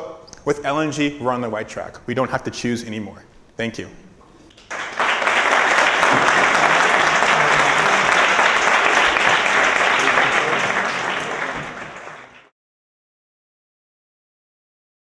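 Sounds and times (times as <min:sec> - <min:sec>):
audience applauding: 0:04.6 - 0:12.5.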